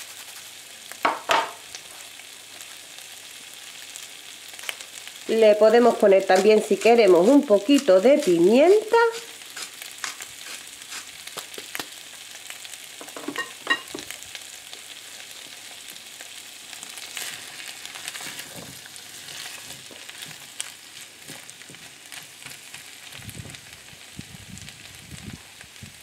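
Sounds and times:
vegetables sizzling in a frying pan: 0.0 - 26.0
spatula stirring in a pan: 5.8 - 12.0, 16.8 - 23.0.

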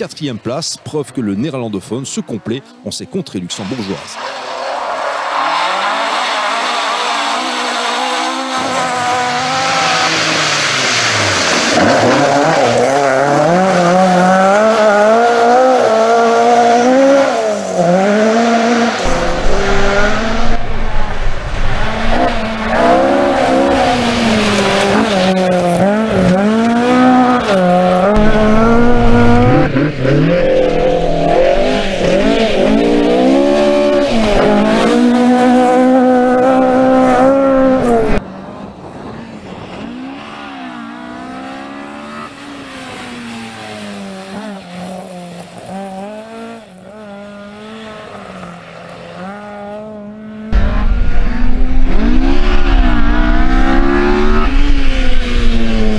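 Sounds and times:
rally car engine revving: 3.5 - 55.9.

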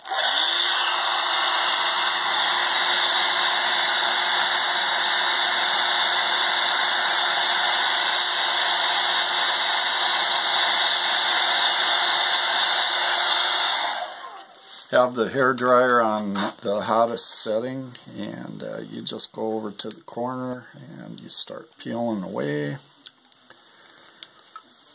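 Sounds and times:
hair dryer running: 0.0 - 14.6.

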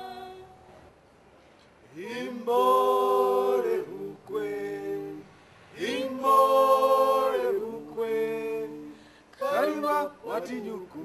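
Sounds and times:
unaccompanied choir singing: 0.0 - 0.6, 1.9 - 11.0.

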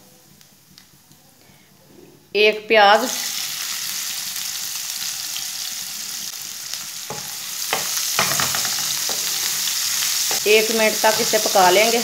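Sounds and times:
onion sizzling in hot oil: 2.8 - 12.0
spatula knocking against pan: 7.1 - 9.3.

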